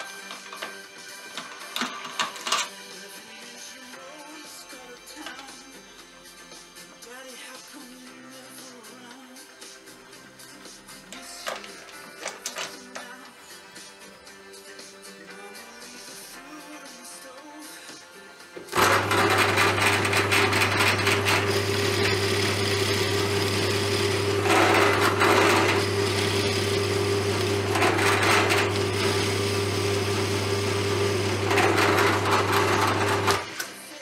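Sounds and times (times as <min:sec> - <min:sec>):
drill bit cutting plywood: 0:18.7 - 0:33.7
drill press motor humming: 0:18.7 - 0:33.8.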